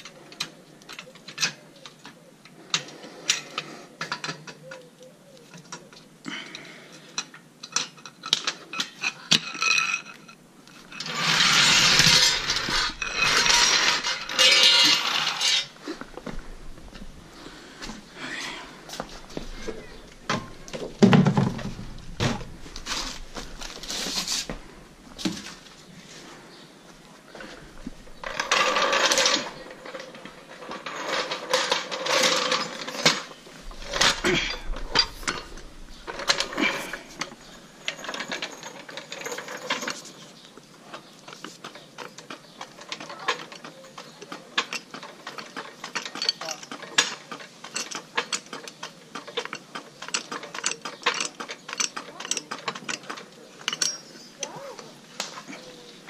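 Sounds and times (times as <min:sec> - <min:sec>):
rattling and scraping: 0:05.5 - 0:56.0
metal tools clanking: 0:07.2 - 0:17.2, 0:18.9 - 0:24.6, 0:27.3 - 0:56.0.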